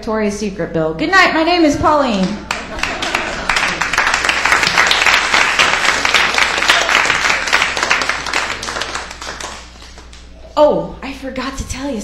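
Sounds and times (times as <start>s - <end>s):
audience applauding: 2.2s - 10.3s.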